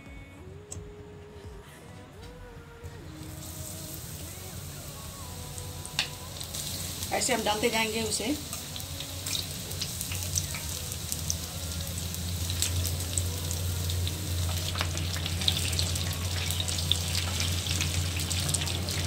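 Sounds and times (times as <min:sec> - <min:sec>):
onions deep-frying in hot oil: 0:03.3 - 0:19.0.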